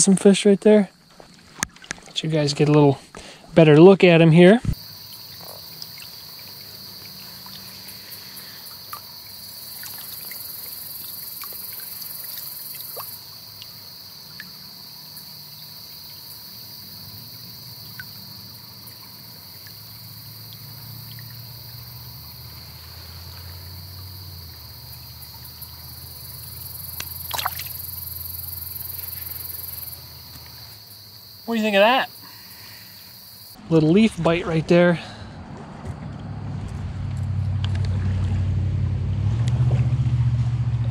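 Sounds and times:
crickets and insects chirping: 0:00.0 - 0:35.6
creek trickling: 0:00.0 - 0:38.8
water splash: 0:01.1 - 0:02.9, 0:04.7 - 0:13.8, 0:26.8 - 0:28.5
small ticks: 0:04.8 - 0:16.9, 0:23.3 - 0:30.7.

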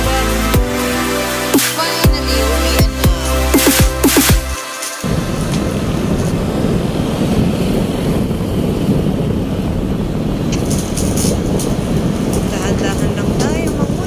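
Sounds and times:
wind noise on microphone: 0:00.0 - 0:14.0
motorbike engine rumble: 0:05.0 - 0:14.0.

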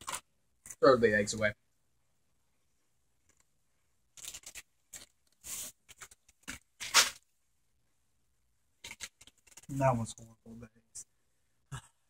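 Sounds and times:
rustling noises: 0:04.2 - 0:07.2.

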